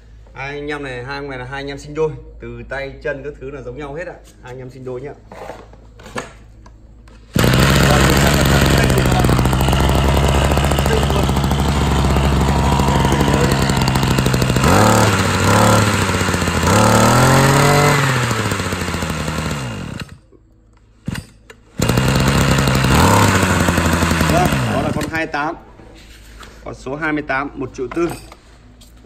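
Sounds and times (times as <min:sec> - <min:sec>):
brush cutter engine idling and revving: 0:07.3 - 0:20.2, 0:21.8 - 0:25.3.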